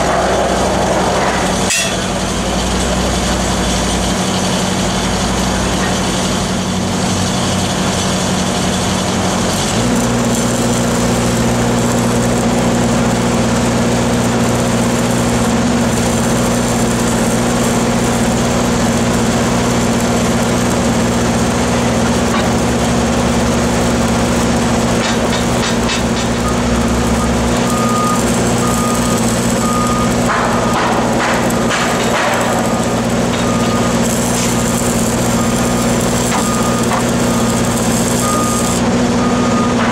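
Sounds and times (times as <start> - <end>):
heavy diesel engines running: 0.0 - 39.9
vehicle reversing alarm beeping: 26.3 - 31.6, 32.4 - 39.9.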